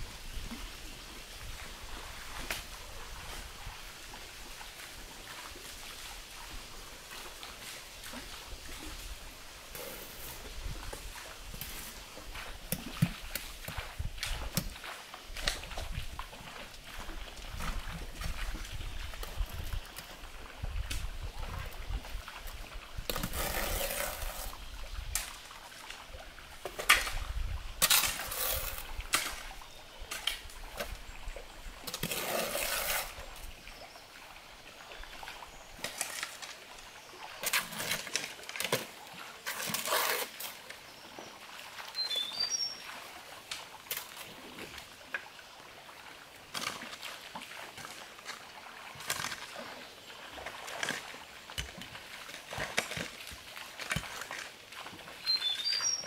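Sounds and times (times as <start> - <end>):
shovel scraping soil: 9.7 - 10.5, 23.1 - 24.6, 27.8 - 29.4, 31.9 - 33.2, 37.4 - 40.6.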